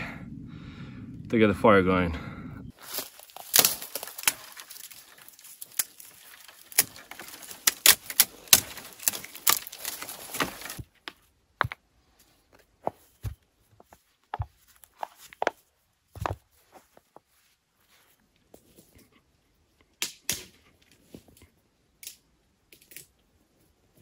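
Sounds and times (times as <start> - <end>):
bark cracking and snapping: 3.0 - 10.8.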